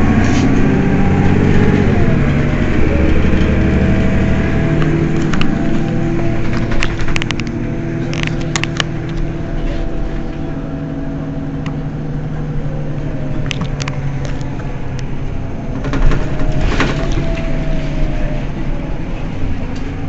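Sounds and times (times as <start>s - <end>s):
bus diesel engine idling: 0.0s - 20.0s
sharp clicks: 4.8s - 9.3s.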